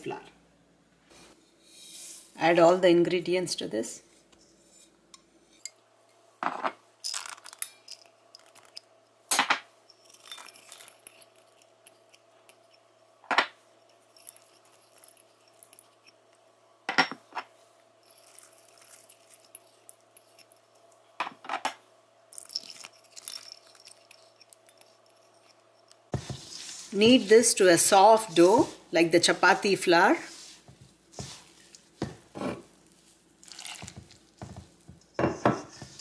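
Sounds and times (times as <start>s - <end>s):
faint steady hum: 0.0s - 36.0s
utensils clinking on steel bowl: 6.5s - 16.3s, 18.0s - 20.9s, 22.3s - 28.7s.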